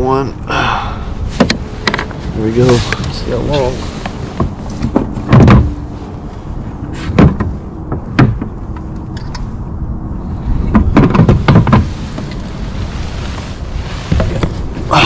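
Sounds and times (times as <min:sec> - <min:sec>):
knocks and thumps against kayak: 0:01.3 - 0:03.0, 0:04.0 - 0:05.9, 0:06.9 - 0:08.9, 0:10.6 - 0:12.6, 0:14.0 - 0:15.0.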